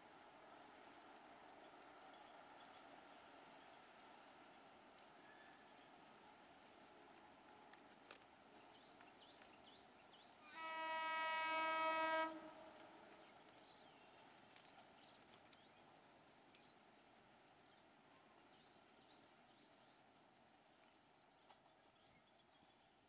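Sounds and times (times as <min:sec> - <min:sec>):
locomotive horn blast: 0:10.5 - 0:12.9.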